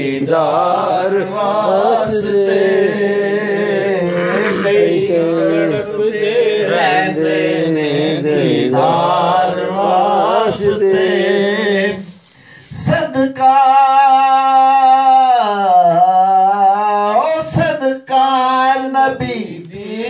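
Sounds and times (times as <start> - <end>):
man singing slow devotional chant: 0.0 - 20.0.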